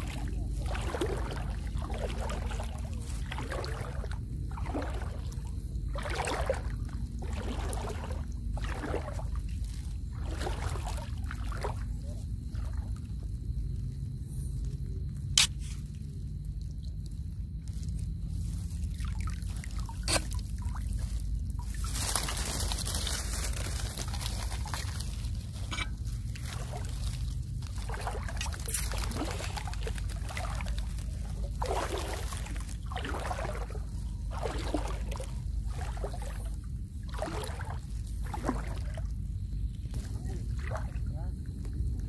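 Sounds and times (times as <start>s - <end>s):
wading through shallow water: 0.0s - 42.0s.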